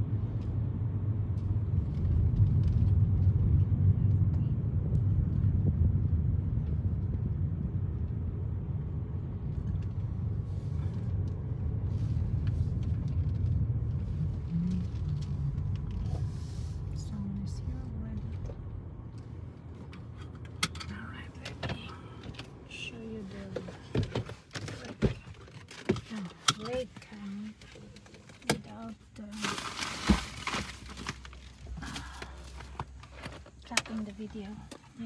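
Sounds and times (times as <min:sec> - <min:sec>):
car road noise rumble: 0:00.0 - 0:35.0
tyres crunching over gravel: 0:29.2 - 0:33.6.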